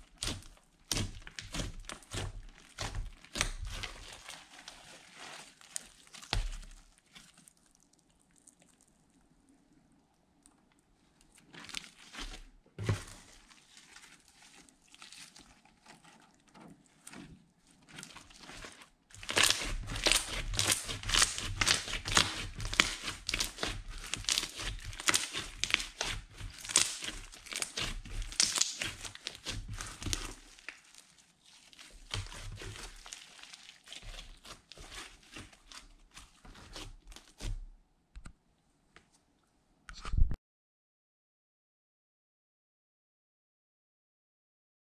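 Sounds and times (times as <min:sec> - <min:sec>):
slime squishing clicks and crackles: 0:00.0 - 0:09.3, 0:13.8 - 0:37.5.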